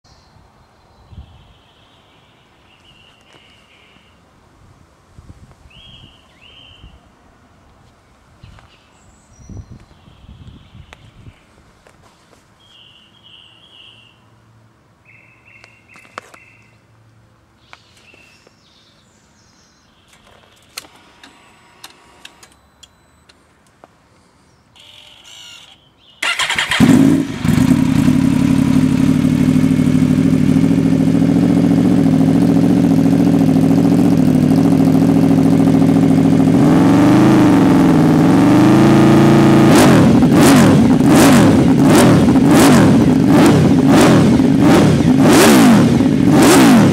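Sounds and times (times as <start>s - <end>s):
faint short beeps: 20.9s - 23.4s
motorcycle engine idling and revving: 26.2s - 46.9s.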